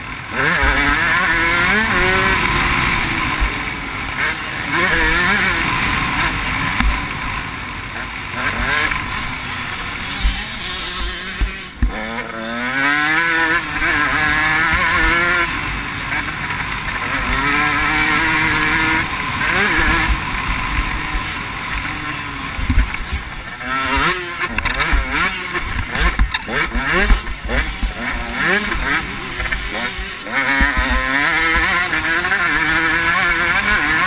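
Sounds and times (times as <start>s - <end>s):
motocross bike engine revving: 0.0s - 34.0s
low thumps: 10.1s - 12.0s.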